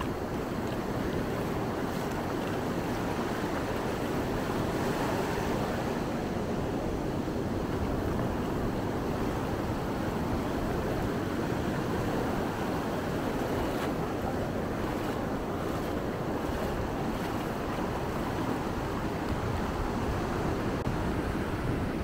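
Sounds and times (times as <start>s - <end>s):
surf washing onto beach: 0.0s - 22.0s
wind noise on microphone: 0.0s - 22.0s.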